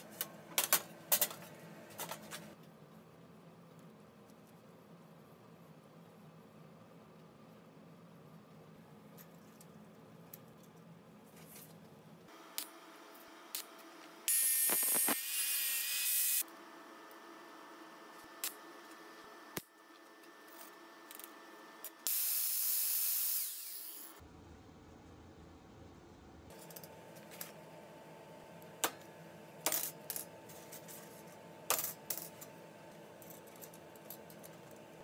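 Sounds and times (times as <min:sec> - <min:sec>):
small power tool running: 0:14.3 - 0:16.4, 0:22.1 - 0:24.2.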